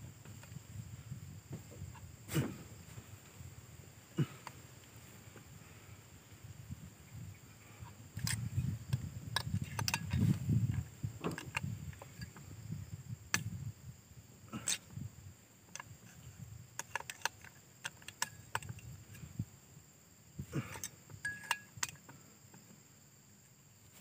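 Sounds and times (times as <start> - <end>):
light clicks and taps of metal part: 16.8 - 19.0, 20.7 - 22.8.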